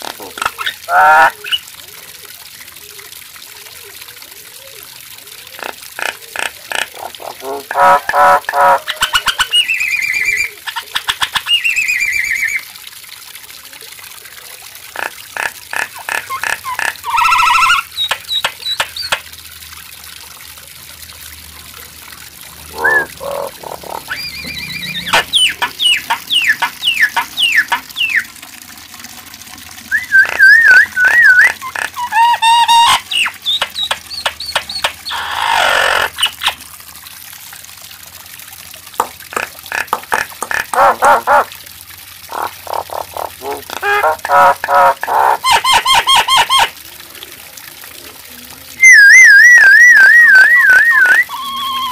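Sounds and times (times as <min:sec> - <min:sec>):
myna bird singing: 0:22.7 - 0:28.3, 0:29.9 - 0:35.3.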